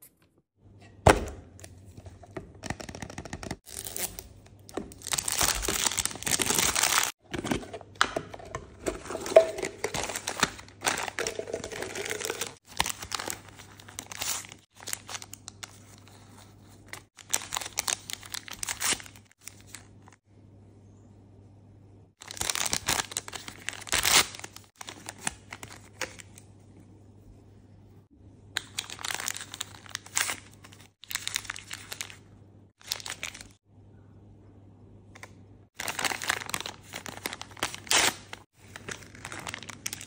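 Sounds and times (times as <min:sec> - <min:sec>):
plastic packaging tearing: 0:03.6 - 0:07.2, 0:22.2 - 0:25.8, 0:35.8 - 0:40.0.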